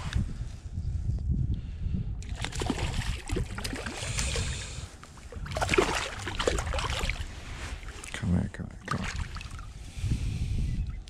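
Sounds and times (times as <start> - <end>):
fish splashing in water: 2.2 - 7.3.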